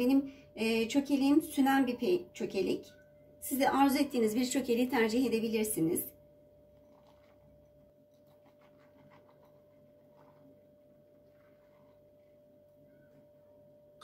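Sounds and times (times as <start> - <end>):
faint steady hum: 0.0 - 14.0
cheese shaken from glass bowl: 6.8 - 12.1.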